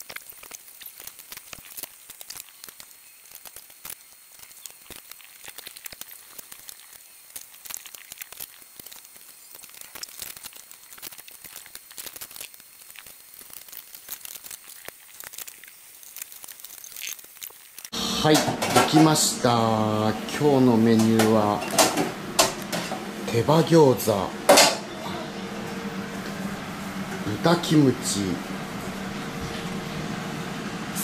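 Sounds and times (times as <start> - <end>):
dishes and utensils clattering: 18.3 - 19.2, 21.0 - 23.1, 24.5 - 25.3
steady high hiss: 25.3 - 31.0.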